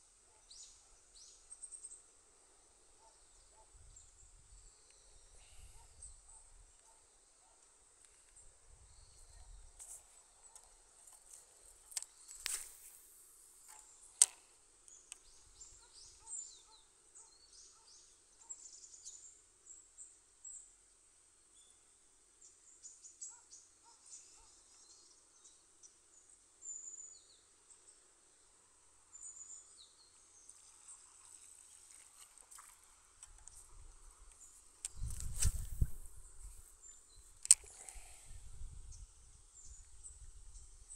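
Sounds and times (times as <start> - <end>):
sharp click: 34.3 - 36.1, 37.4 - 38.0.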